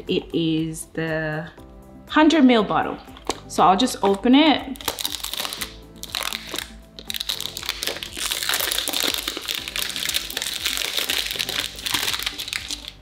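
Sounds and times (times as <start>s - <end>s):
background music: 0.0s - 13.0s
packaging crinkling: 4.8s - 13.0s.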